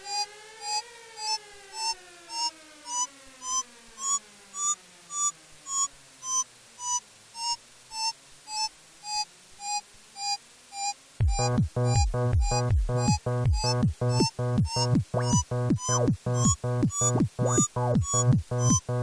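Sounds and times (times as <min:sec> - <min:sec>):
gliding synth tone: 0:00.0 - 0:09.8
electronic blip: 0:00.6 - 0:19.0.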